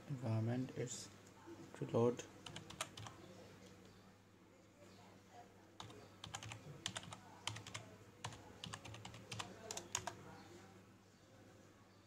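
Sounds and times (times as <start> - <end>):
computer keyboard typing: 2.4 - 3.2, 5.8 - 10.2.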